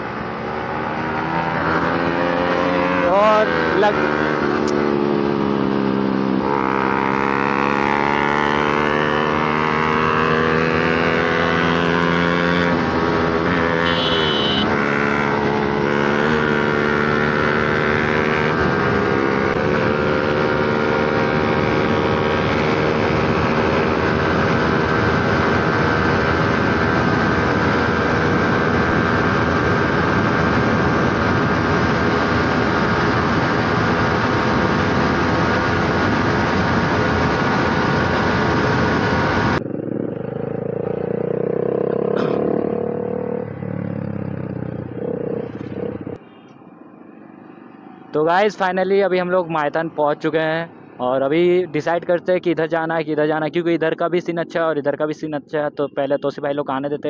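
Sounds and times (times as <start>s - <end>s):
motorcycle engine running hard: 0.0s - 46.3s
wind rush on microphone: 17.5s - 40.2s.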